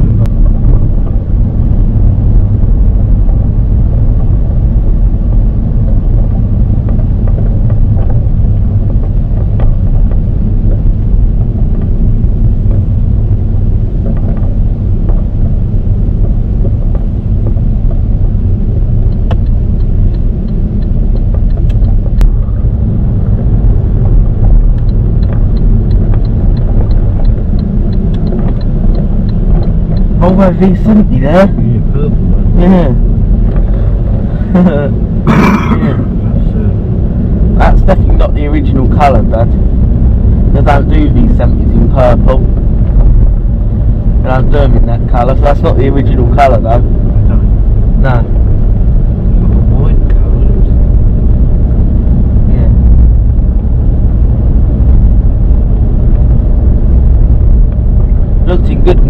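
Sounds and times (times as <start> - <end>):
car engine and road rumble: 0.0 - 59.0
light regular ticking: 0.1 - 35.2.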